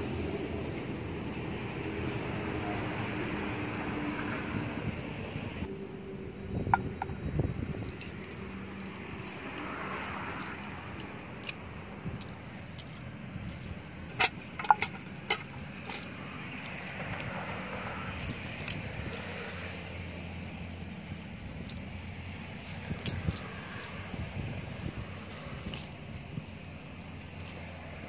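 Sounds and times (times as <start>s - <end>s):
lead sinkers clinking: 12.2s - 17.0s.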